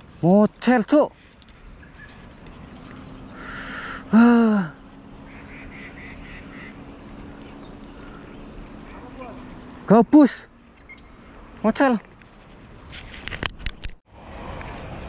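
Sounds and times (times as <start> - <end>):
man's loud exclamation: 4.1 - 4.8.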